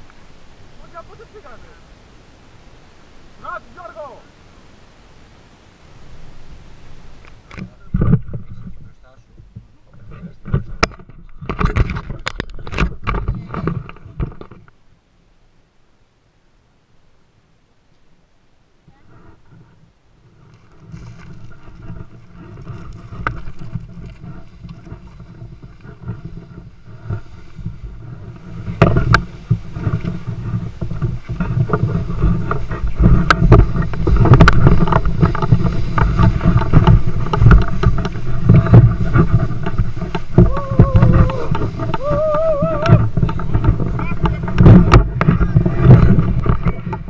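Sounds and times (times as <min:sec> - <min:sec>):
wind buffeting microphone: 0:18.9 - 0:47.0.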